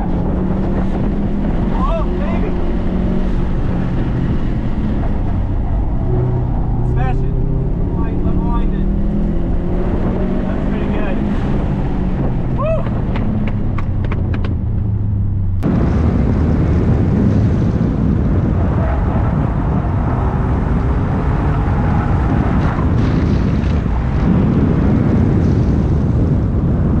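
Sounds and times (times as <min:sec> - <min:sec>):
car engine running: 0:00.0 - 0:17.6
wind and road noise: 0:00.0 - 0:27.0.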